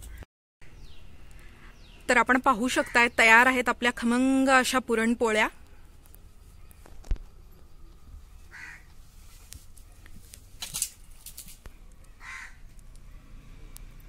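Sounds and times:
crow cawing: 0:08.5 - 0:08.9, 0:12.2 - 0:12.7.

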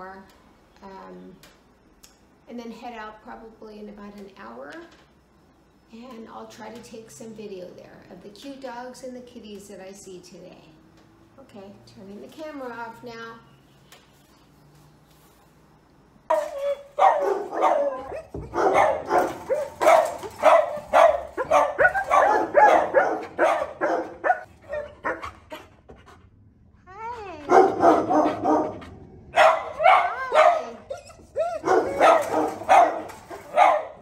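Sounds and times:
dog barking: 0:16.3 - 0:25.4, 0:27.5 - 0:30.9, 0:31.6 - 0:34.0.

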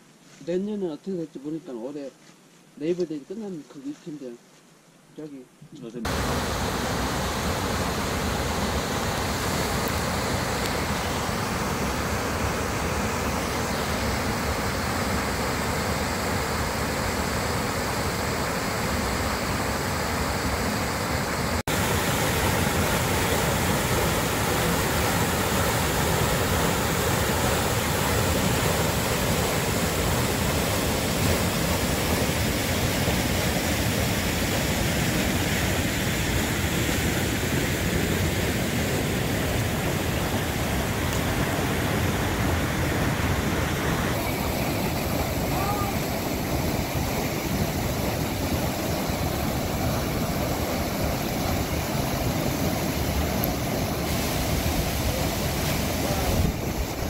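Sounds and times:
waterfall rushing into pool: 0:06.0 - 0:57.0.

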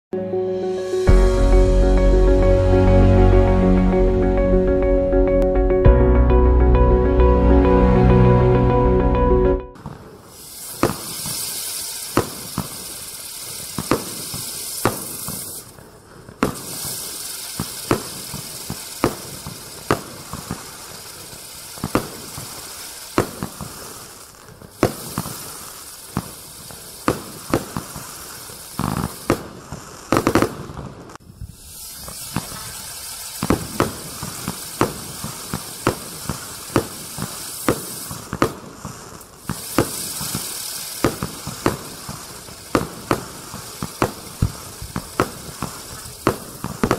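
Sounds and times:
firework sharp cracks: 0:09.8 - 0:46.9
firework sparks hissing: 0:09.8 - 0:46.9.

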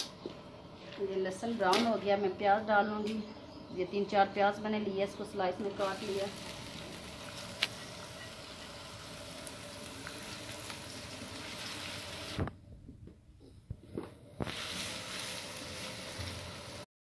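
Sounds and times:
onions sizzling in oil: 0:05.6 - 0:12.5, 0:14.4 - 0:16.9.

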